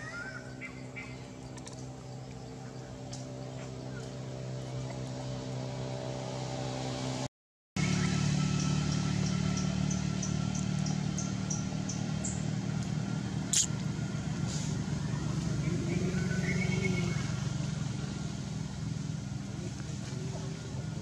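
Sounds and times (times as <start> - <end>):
engine hum: 0.0 - 21.0
sharp click: 13.5 - 13.7
short high chirps: 13.5 - 13.7.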